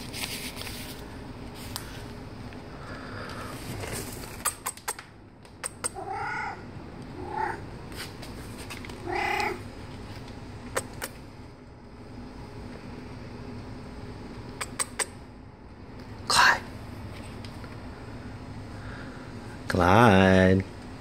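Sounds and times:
cat meowing: 0:05.9 - 0:07.6, 0:09.0 - 0:09.6
sharp clicks: 0:14.5 - 0:15.2.

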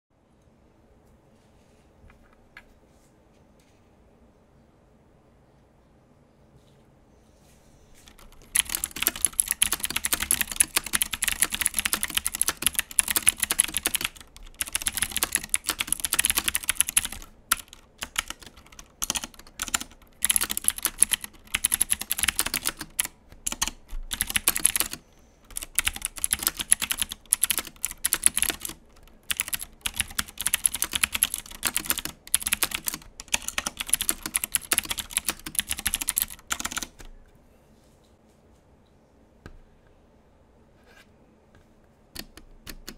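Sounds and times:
mechanical keyboard typing clicks: 0:08.1 - 0:37.1, 0:42.1 - 0:42.9.

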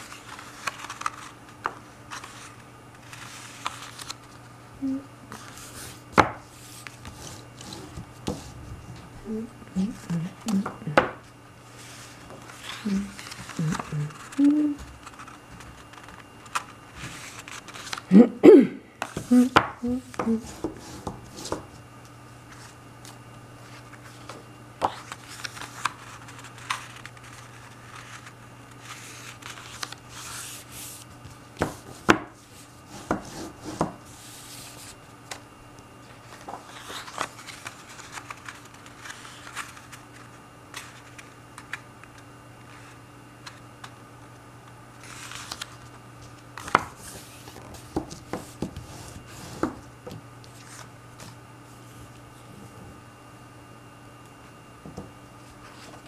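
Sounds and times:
steady low hum: 0:00.0 - 0:56.0
paper rubbing and sliding: 0:02.1 - 0:04.4, 0:15.0 - 0:18.0, 0:25.0 - 0:31.0, 0:36.2 - 0:41.3, 0:45.0 - 0:45.9.

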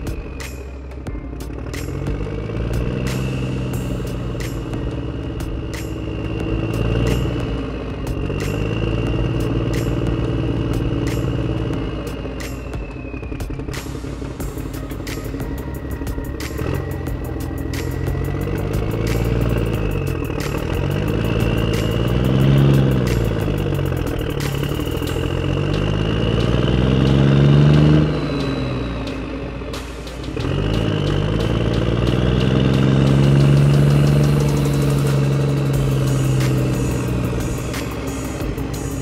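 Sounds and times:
model tractor engine revving: 0:05.0 - 0:12.4, 0:14.6 - 0:29.7, 0:30.3 - 0:39.0.

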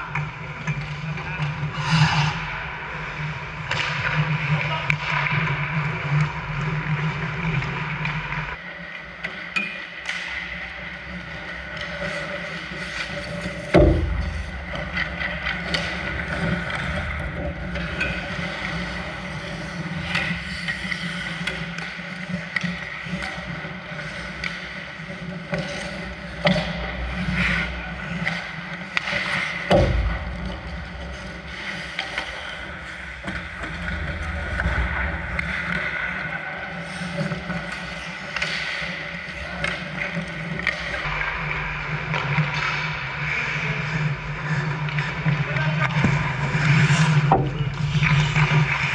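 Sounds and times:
hockey sticks and puck clacking: 0:00.0 - 0:01.7, 0:03.6 - 0:48.9
skate blades scraping ice: 0:11.0 - 0:29.7
heavy thumps: 0:13.7 - 0:15.4.

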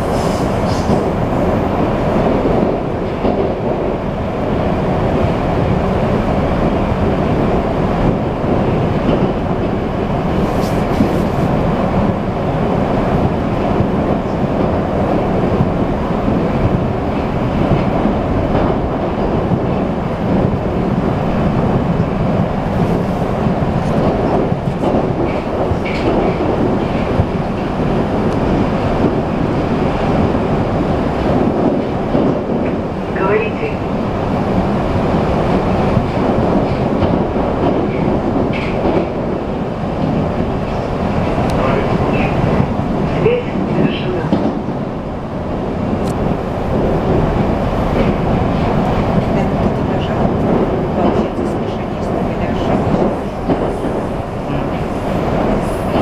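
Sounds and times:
train wheels on rail: 0:00.0 - 0:56.0.

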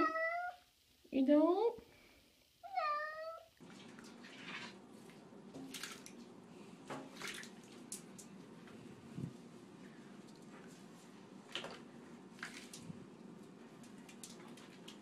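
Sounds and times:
cat meowing: 0:00.0 - 0:00.6, 0:02.6 - 0:03.5
water sloshing and splashing: 0:03.6 - 0:09.5, 0:10.2 - 0:15.0.

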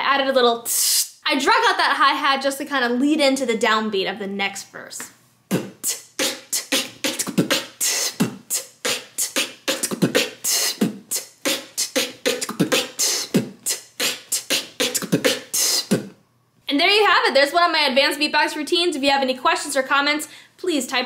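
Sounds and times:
woman beatboxing: 0:00.5 - 0:01.6, 0:04.8 - 0:16.2.

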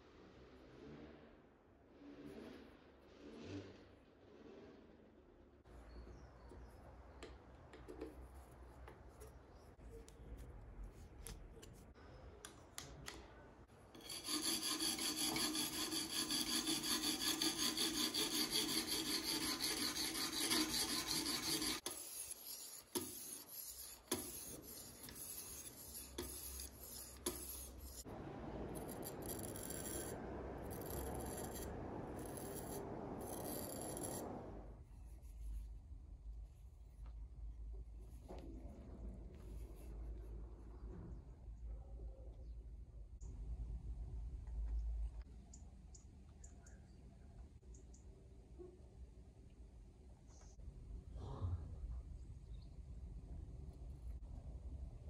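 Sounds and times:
sharpening stone scraping knife blade: 0:14.0 - 0:28.1, 0:28.8 - 0:34.2.

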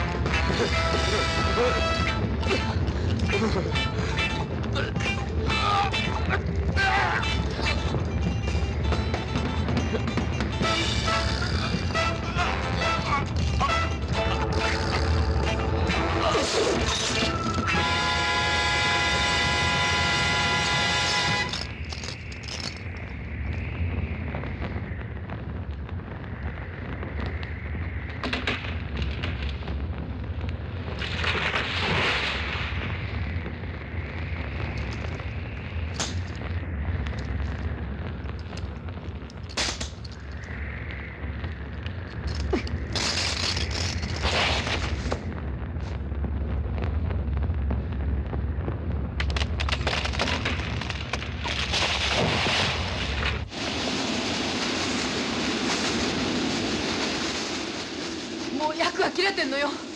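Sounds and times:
steady rushing noise: 0:00.0 - 0:17.8, 0:18.8 - 0:59.9
deep fire rumble: 0:00.0 - 0:59.9
loud explosion bangs: 0:42.1 - 0:59.9.

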